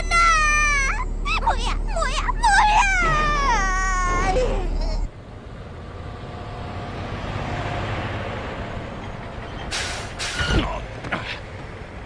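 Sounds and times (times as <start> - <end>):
truck engine running: 0.0 - 12.0
truck stopping thump: 6.5 - 11.9
air brakes hissing: 9.6 - 10.6.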